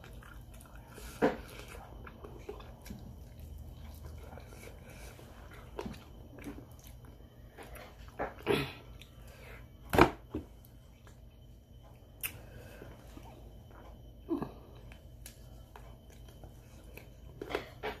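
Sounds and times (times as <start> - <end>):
wet chewing smacks and clicks: 0.0 - 4.7.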